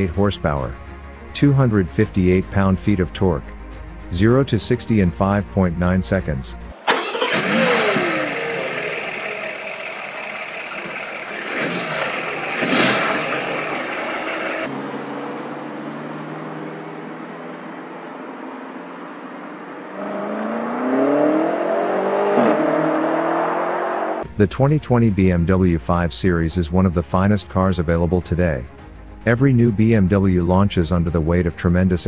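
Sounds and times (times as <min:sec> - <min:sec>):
car engine revving: 0:06.7 - 0:17.8, 0:19.6 - 0:24.3.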